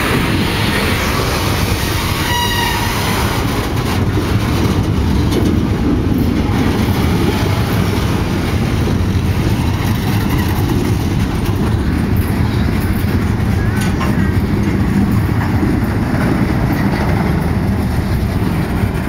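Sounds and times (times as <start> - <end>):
train wheels rumbling on rails: 0.0 - 19.0
high-pitched wheel squeal: 2.1 - 3.1.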